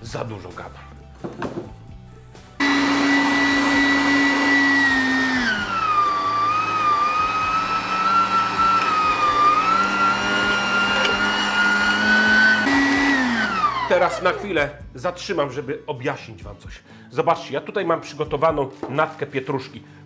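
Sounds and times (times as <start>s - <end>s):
meat grinder motor whine: 2.6s - 14.5s.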